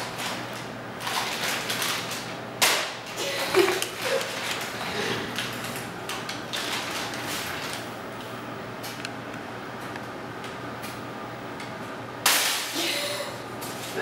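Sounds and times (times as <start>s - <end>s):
paper bag rustling and crinkling: 0.0s - 2.4s, 3.1s - 7.9s.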